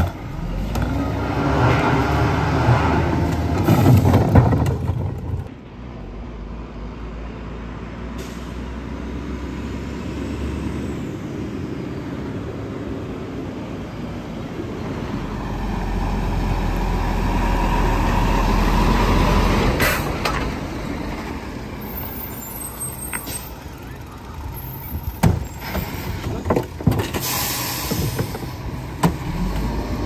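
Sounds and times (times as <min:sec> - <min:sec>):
garbage truck diesel engine: 0:00.0 - 0:30.0
air brake hiss: 0:27.2 - 0:28.5.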